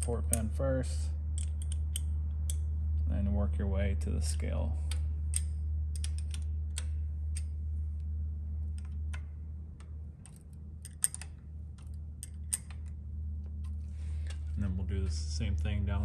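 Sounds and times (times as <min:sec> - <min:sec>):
low hum: 0:00.0 - 0:16.0
hex key clicking in bolts: 0:01.4 - 0:02.7, 0:04.9 - 0:07.5, 0:08.8 - 0:13.0.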